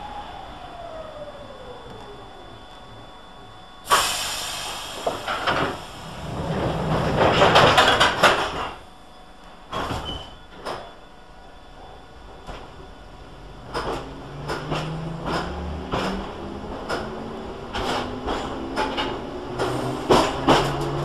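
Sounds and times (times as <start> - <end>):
train wheels on rails: 3.9 - 8.8, 13.6 - 21.0
wheels clanking over rail joints: 6.4 - 8.8, 13.7 - 21.0.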